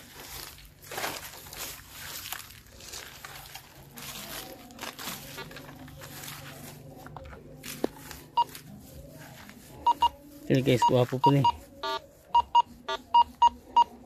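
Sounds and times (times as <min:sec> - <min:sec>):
digging rustling and scraping: 0:00.0 - 0:14.0
metal detector beep: 0:09.9 - 0:13.9.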